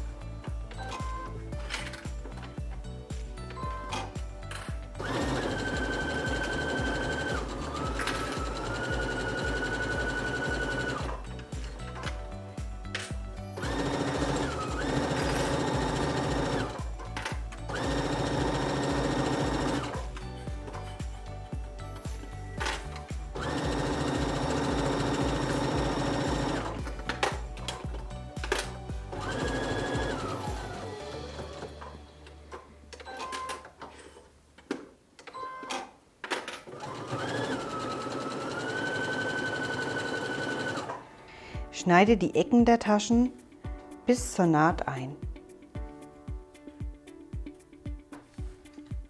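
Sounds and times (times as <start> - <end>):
sewing machine motor whining: 5.0 - 11.2, 36.8 - 41.0
sewing machine stitching: 5.0 - 11.2, 13.6 - 16.8, 17.7 - 20.1, 23.4 - 27.4, 29.1 - 32.0, 36.7 - 41.0.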